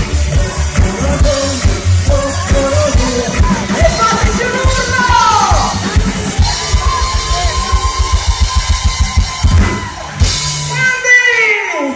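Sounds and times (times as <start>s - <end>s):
person singing: 0.0s - 7.5s
live dance-pop band music: 0.0s - 11.9s.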